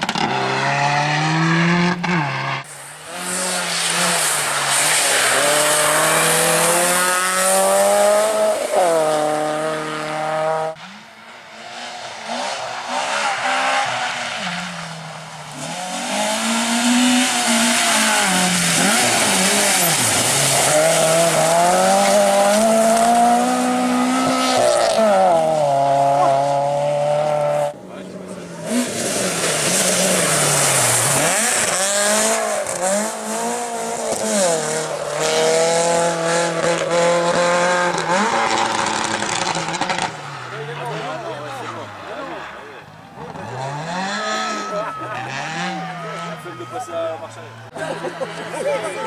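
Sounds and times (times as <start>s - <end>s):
rally car engines revving: 0.0s - 49.0s
wheels spinning in mud: 12.0s - 26.4s.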